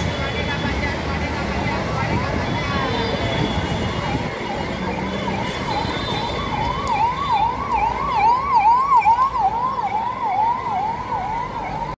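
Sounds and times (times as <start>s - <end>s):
crowd noise: 0.0s - 11.9s
siren yelping: 4.2s - 11.9s.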